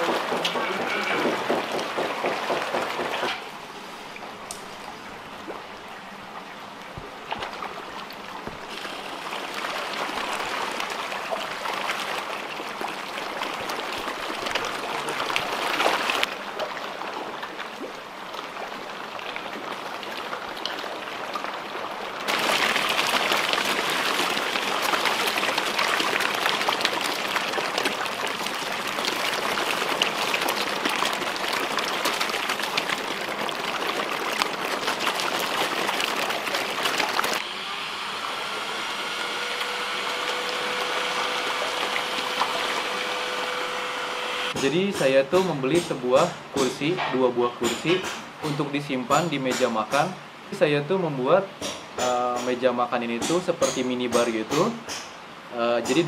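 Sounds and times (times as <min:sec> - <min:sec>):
fish splashing at water surface: 0:00.0 - 0:05.6, 0:06.9 - 0:37.5, 0:39.1 - 0:46.9.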